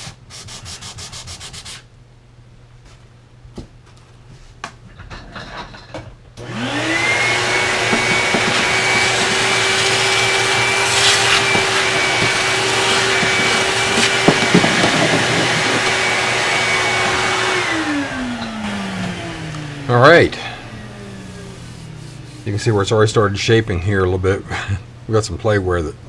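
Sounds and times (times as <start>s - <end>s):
shop vacuum motor whining: 6.4s - 22.8s.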